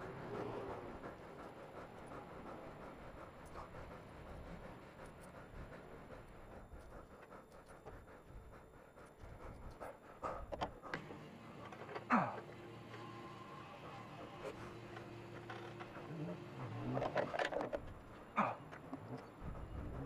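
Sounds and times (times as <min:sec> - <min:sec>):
heavy breathing: 0:00.0 - 0:20.0.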